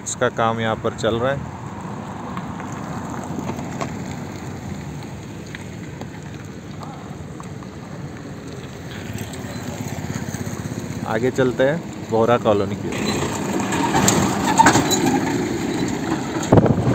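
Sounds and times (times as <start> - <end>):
wind rushing on microphone: 13.4 - 16.9.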